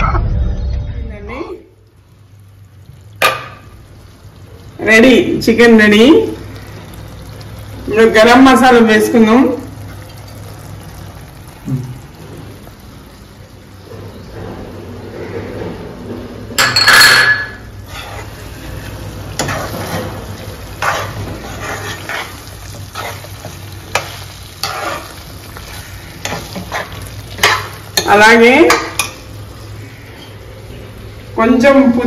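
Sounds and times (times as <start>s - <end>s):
curry sizzling in a pan: 1.3s - 15.5s, 16.5s - 32.0s
spoon scraping a pan: 16.6s - 29.4s.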